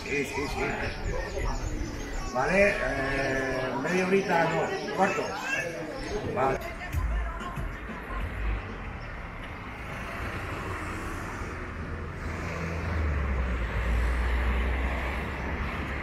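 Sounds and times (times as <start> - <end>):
car driving past: 8.3 - 16.0.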